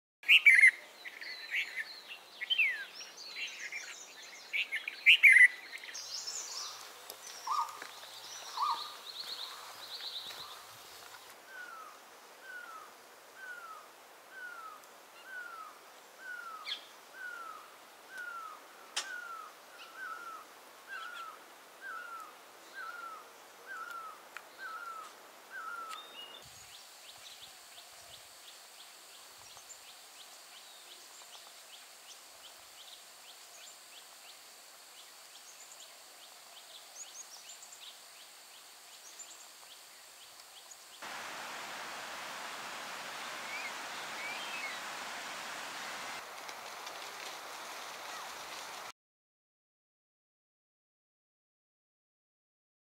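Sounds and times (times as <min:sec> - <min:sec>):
high insect drone: 0:05.6 - 0:46.3
even rushing noise: 0:41.0 - 0:46.2
rapid bird chirps: 0:41.0 - 0:46.2
short repeating bird call: 0:41.1 - 0:46.2.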